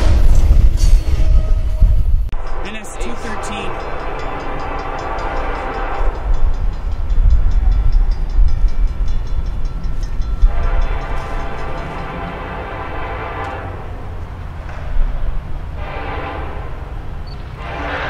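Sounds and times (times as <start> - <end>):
locomotive horn: 0.0 - 7.0, 10.4 - 18.0
loud low train rumble: 0.0 - 18.0
crossing bell ringing: 2.4 - 14.4.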